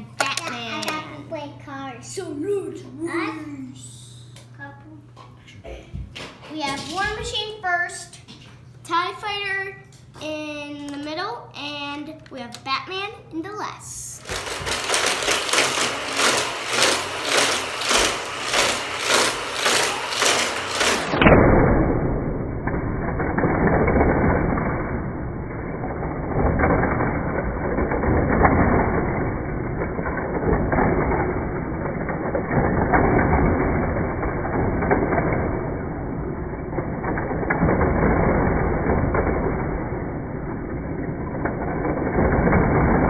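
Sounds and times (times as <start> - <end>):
toy track booster pulsing: 14.0 - 21.5, 25.7 - 43.0.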